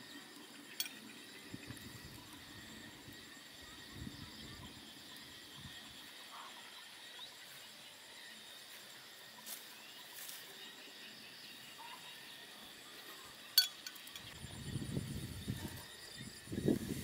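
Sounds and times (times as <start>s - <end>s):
insects chirring: 0.0s - 17.0s
cooking pot clinking: 13.6s - 14.3s.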